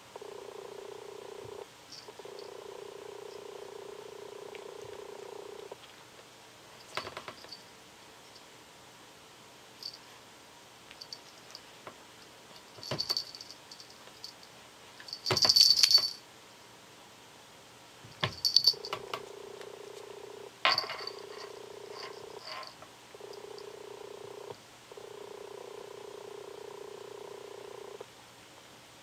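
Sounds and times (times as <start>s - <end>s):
cat purring: 0.0s - 5.9s, 18.4s - 28.1s
collar bell jingling: 12.6s - 14.4s, 15.1s - 16.2s, 18.3s - 19.0s, 20.7s - 23.7s.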